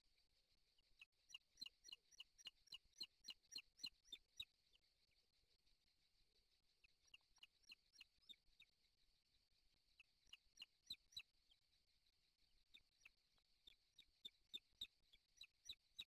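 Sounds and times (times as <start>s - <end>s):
bird chicks peeping: 1.3s - 4.5s, 10.0s - 11.3s, 12.7s - 16.0s.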